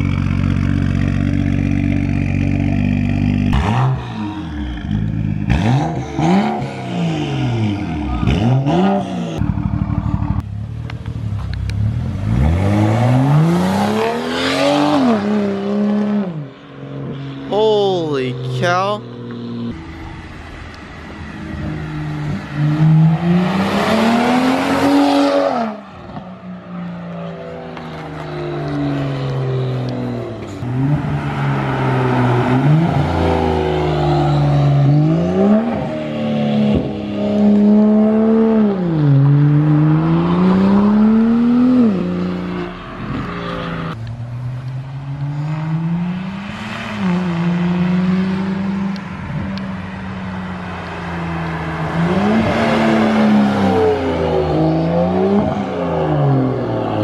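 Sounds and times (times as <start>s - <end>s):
loud car exhaust revving: 0.0s - 10.6s, 19.2s - 26.2s.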